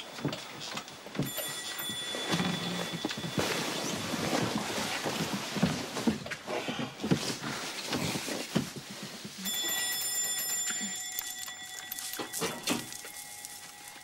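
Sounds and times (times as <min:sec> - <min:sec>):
steady electronic ringing tone: 0:01.2 - 0:04.0
soft rustling: 0:01.3 - 0:14.0.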